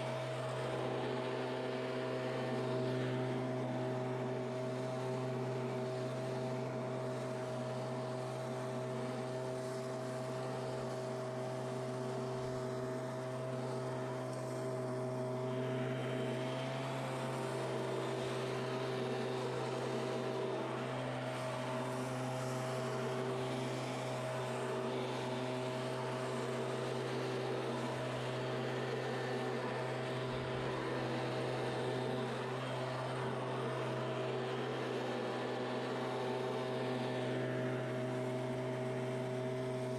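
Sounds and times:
leaf blower engine running: 0.0s - 39.9s.

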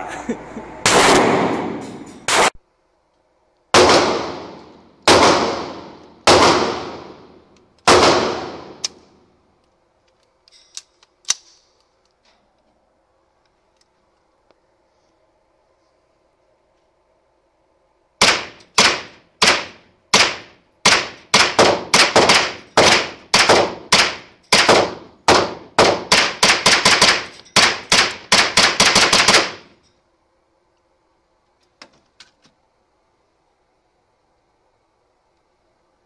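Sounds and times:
gunshots echoing indoors: 0.7s - 2.6s, 3.7s - 8.9s, 18.2s - 29.8s.

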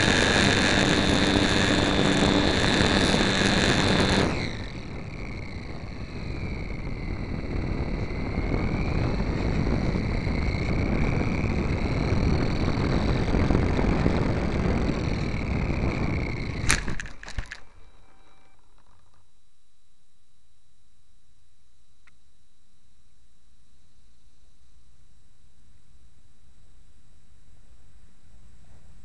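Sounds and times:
rushing air noise: 0.0s - 18.4s
faint wavering motor whine: 0.0s - 29.0s
low hiss: 0.0s - 29.0s.

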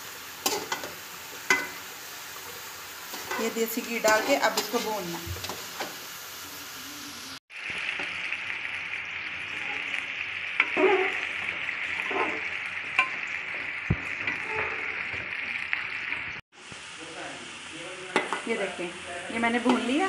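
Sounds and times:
carrots sizzling in pot: 0.0s - 20.0s
metal spatula scraping pot: 3.1s - 5.9s, 9.5s - 15.3s.

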